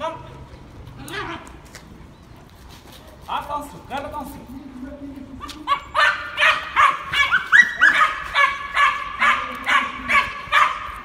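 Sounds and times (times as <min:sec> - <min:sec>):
puppy barking and yapping: 0:05.6 - 0:11.0.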